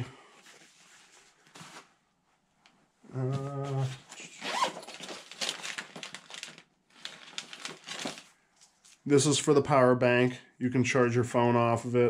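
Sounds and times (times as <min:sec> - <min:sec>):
bag fabric rustling: 0:03.8 - 0:09.0
zipper being drawn: 0:04.3 - 0:05.0.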